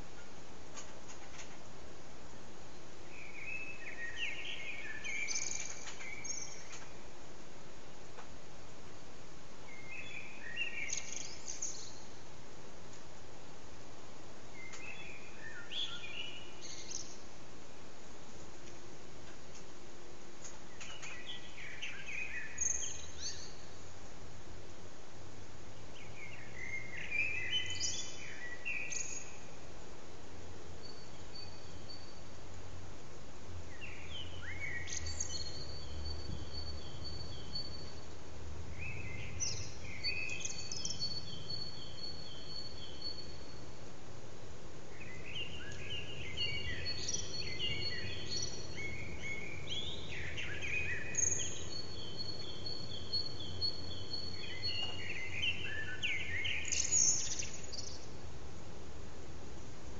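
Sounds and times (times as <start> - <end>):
low steady hum: 0.0 - 59.9
blackbird singing: 3.1 - 6.8, 9.7 - 12.2, 14.6 - 17.2, 20.7 - 23.7, 25.9 - 29.5, 30.8 - 32.2, 33.7 - 38.0, 38.7 - 43.6, 44.9 - 58.1.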